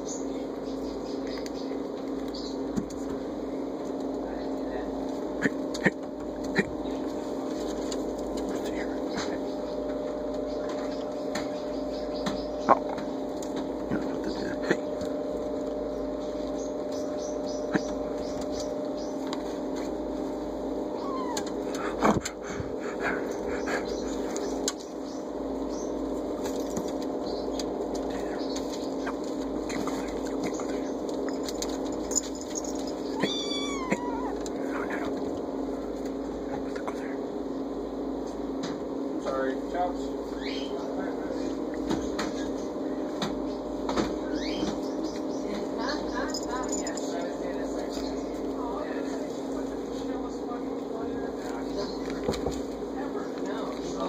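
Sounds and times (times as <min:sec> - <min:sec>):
steady hum: 0:00.0 - 0:54.0
kitten meowing: 0:21.0 - 0:21.5, 0:33.1 - 0:34.4.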